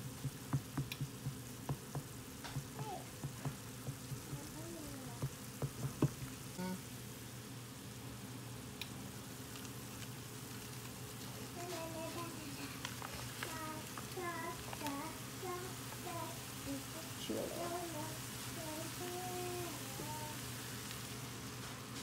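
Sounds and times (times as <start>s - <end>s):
spatula knocking against pan: 0.0s - 4.5s
meat sizzling in a frying pan: 0.0s - 22.0s.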